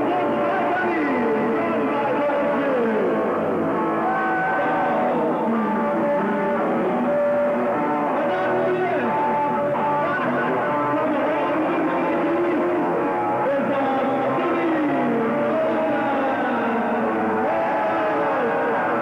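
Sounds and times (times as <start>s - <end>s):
bass guitar: 0.0s - 19.0s
electric guitar: 0.0s - 19.0s
man singing into microphone: 4.0s - 19.0s.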